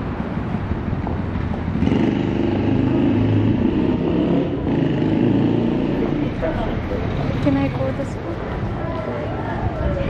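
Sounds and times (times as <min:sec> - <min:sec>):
vehicle engine passing: 0:01.4 - 0:08.5.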